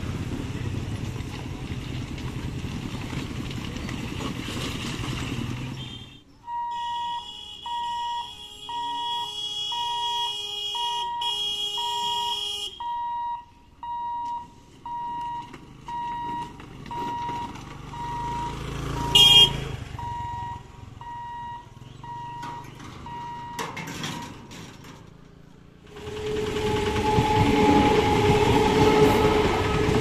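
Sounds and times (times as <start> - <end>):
motor vehicle rumbling past: 0.0 - 6.0, 14.6 - 30.0
level crossing alarm beeping: 6.4 - 24.5.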